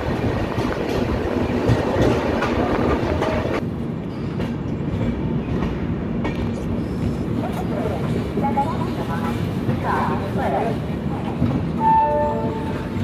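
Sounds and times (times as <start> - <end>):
train wheels clacking over rail joints: 0.1 - 7.2.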